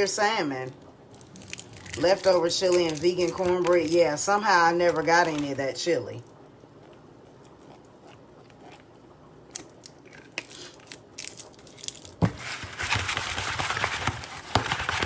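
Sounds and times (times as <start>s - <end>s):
food shaken in covered bowl: 12.3s - 15.0s.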